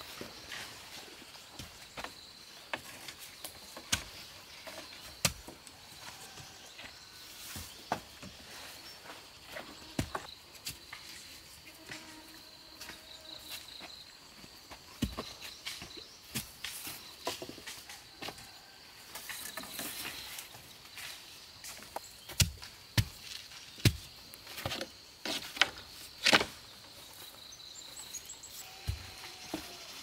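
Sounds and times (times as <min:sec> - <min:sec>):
high-pitched insect buzz: 0:09.6 - 0:13.9.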